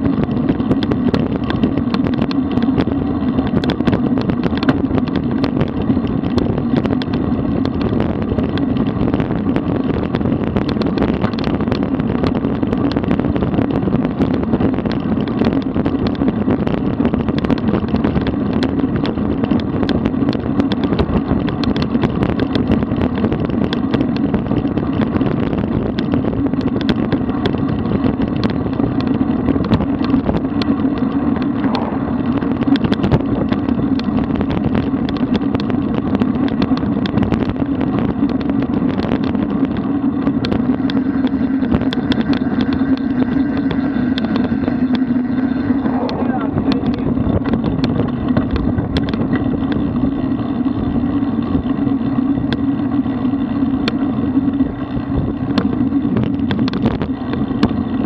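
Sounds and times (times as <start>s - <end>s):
bike tyre road noise: 0.0s - 58.0s
wind on microphone: 0.0s - 58.0s
small ticks: 25.9s - 45.5s.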